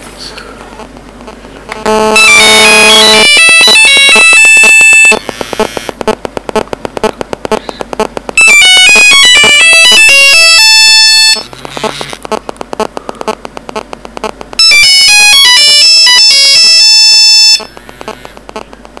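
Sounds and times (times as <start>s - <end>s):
rapid quiet pulsing: 5.2s - 8.4s, 11.4s - 14.6s, 17.6s - 19.0s.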